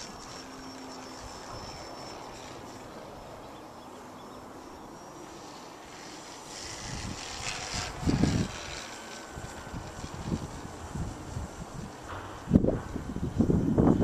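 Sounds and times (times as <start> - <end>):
distant aircraft drone: 0.0 - 14.0
wind buffeting microphone: 5.9 - 14.0.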